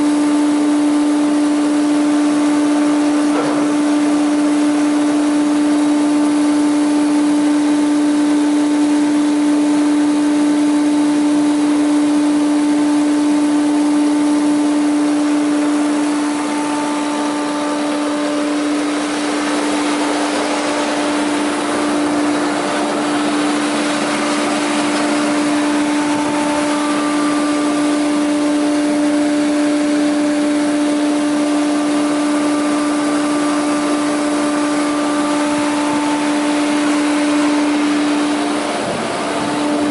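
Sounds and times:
thickness planer whining: 0:00.0 - 0:39.9.

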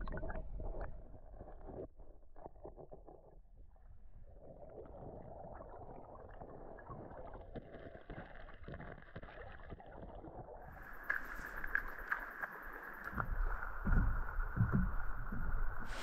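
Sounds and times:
small splashes and clicks: 0:04.6 - 0:16.0.

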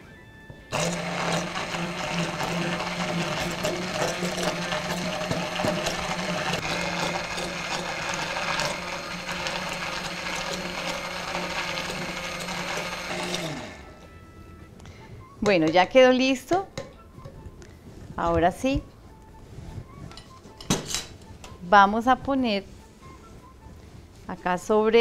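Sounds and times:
immersion blender running: 0:00.7 - 0:14.0.

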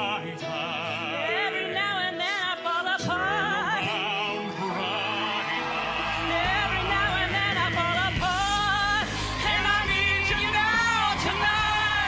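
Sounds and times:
man singing operatically: 0:00.0 - 0:02.2
musical accompaniment: 0:00.0 - 0:12.0
deep bass: 0:05.7 - 0:12.0.

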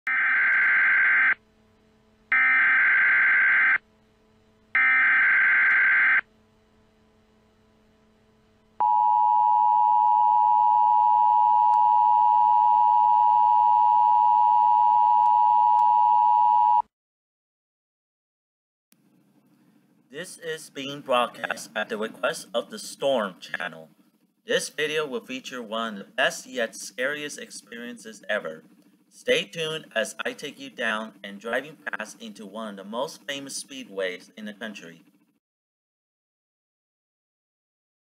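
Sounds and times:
steady two-tone attention signal: 0:08.8 - 0:16.8.

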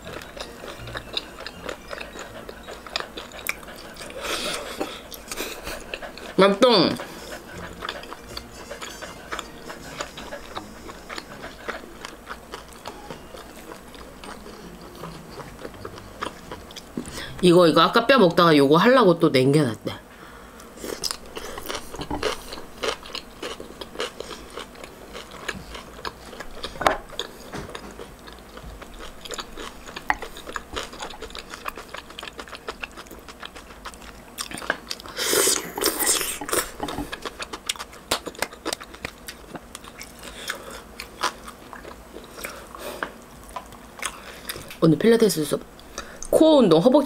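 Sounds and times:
crunchy chewing: 0:00.0 - 0:17.1, 0:20.6 - 0:44.8.

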